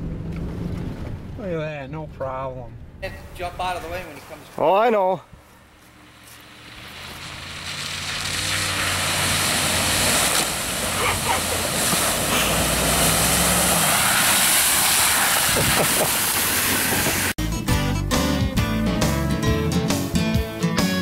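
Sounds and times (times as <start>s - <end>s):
truck engine: 5.3s - 17.4s
water splashing: 5.9s - 17.4s.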